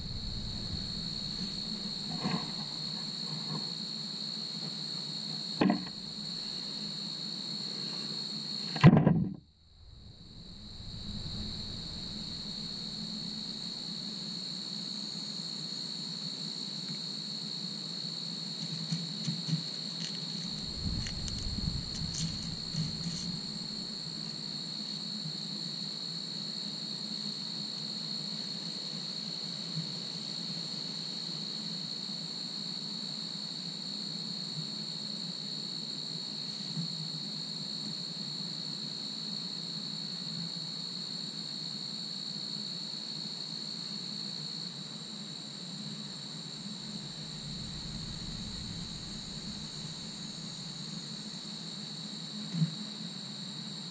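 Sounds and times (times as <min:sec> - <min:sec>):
low steady hum: 0:00.0 - 0:03.7, 0:08.9 - 0:14.0, 0:20.0 - 0:24.4, 0:46.8 - 0:51.0
crickets trilling: 0:00.0 - 0:08.9, 0:09.6 - 0:53.9
hands working through loose soil: 0:18.6 - 0:23.6.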